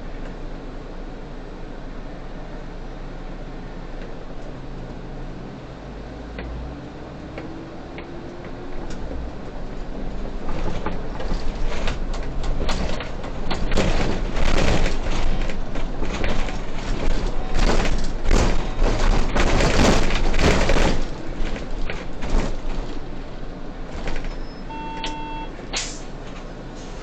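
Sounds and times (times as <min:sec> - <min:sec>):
bus road noise: 0:00.0 - 0:27.0
rattling and knocking of bus body: 0:07.2 - 0:24.7, 0:25.6 - 0:26.7
short electronic tone: 0:24.4 - 0:25.6.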